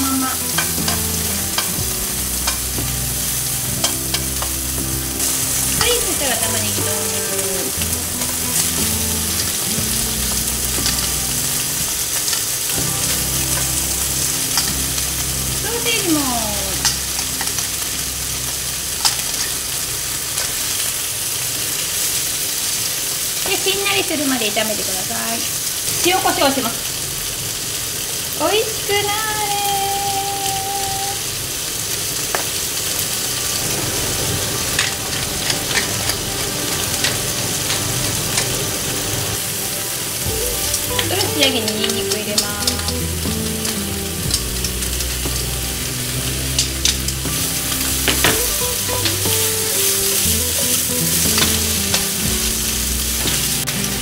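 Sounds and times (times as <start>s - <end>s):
onion and bacon sizzling: 0.0s - 54.0s
metal tongs clicking on pan: 0.2s - 1.8s, 2.4s - 2.7s, 3.8s - 4.6s, 5.2s - 15.1s, 16.2s - 17.8s, 18.5s - 19.6s, 20.3s - 20.8s, 40.6s - 45.5s, 51.1s - 52.2s.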